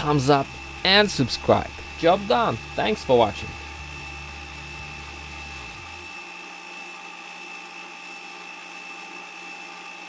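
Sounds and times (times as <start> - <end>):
low hum: 0.0 - 6.1
small electric motor whine: 0.0 - 10.0.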